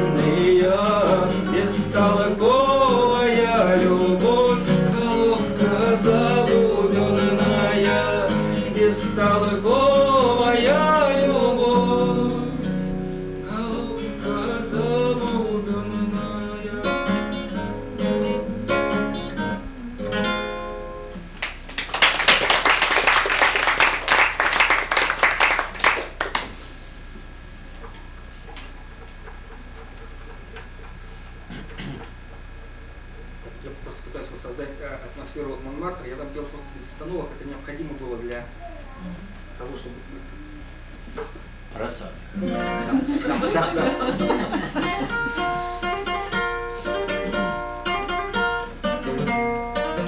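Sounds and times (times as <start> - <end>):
man singing: 0.0 - 17.4
classical guitar playing: 0.0 - 21.4, 42.4 - 50.0
people clapping: 21.4 - 26.6, 27.8 - 31.1.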